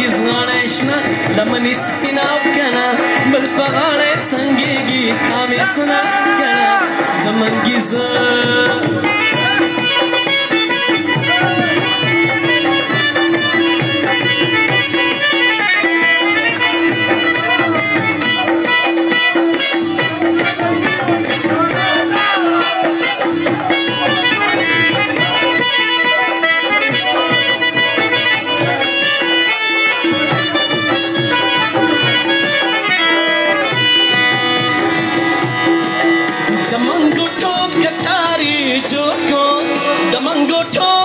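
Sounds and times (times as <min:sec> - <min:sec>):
harmonium melody with drone: 0:00.0 - 0:41.0
tabla drumming: 0:00.0 - 0:41.0.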